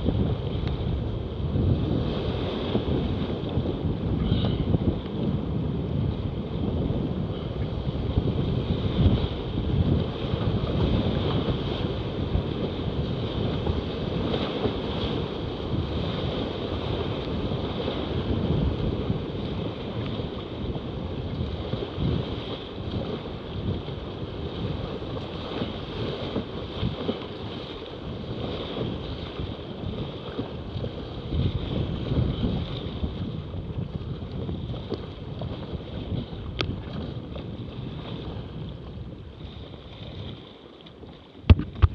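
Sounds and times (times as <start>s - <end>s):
wind buffeting microphone: 0.0s - 41.9s
paddle blades striking water: 7.3s - 41.9s
rapids rushing and splashing: 8.2s - 38.5s.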